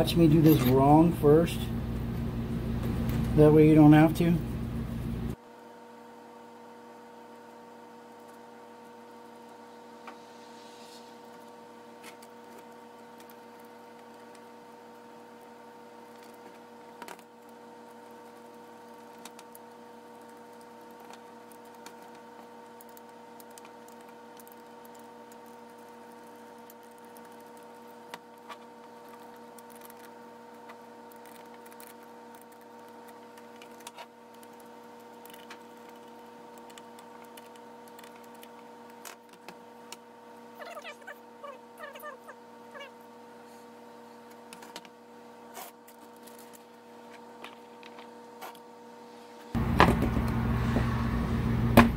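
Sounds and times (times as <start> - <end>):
steady hum: 0.0 - 5.4, 46.8 - 51.9.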